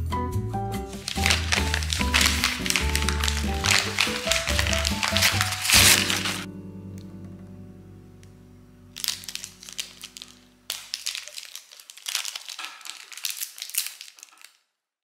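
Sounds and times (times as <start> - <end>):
plastic wrapper crinkling: 0.8 - 6.5, 9.0 - 14.7.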